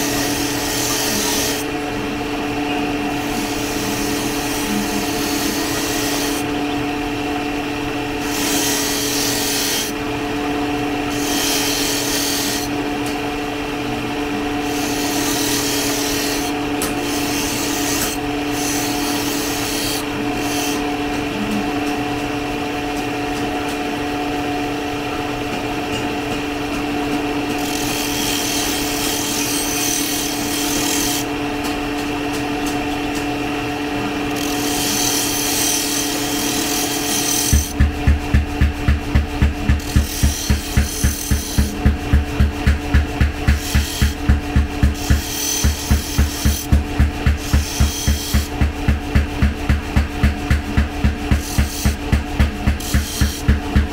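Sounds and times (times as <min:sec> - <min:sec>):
grinder motor hum: 0:00.0 - 0:53.9
steel grinding gritty hiss: 0:03.3 - 0:06.4, 0:08.2 - 0:09.9, 0:27.6 - 0:31.3, 0:34.3 - 0:37.7, 0:45.0 - 0:46.7.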